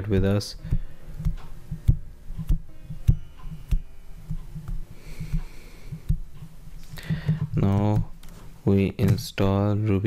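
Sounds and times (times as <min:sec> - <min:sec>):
low thumps: 0:00.0 - 0:09.4
person breathing close to microphone: 0:00.6 - 0:01.3, 0:04.5 - 0:07.6.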